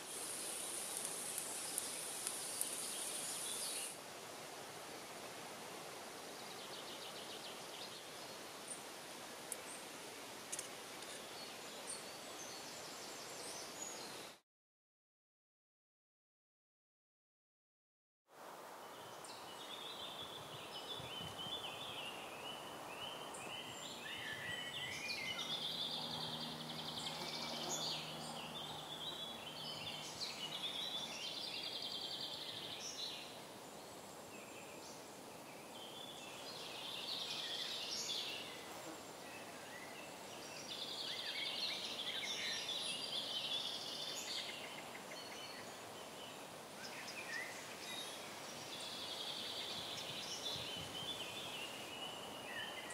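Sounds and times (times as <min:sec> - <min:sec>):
songbirds singing: 0:00.0 - 0:04.0, 0:10.5 - 0:14.4, 0:18.9 - 0:52.9
steady background hiss: 0:00.0 - 0:14.4, 0:18.4 - 0:52.9.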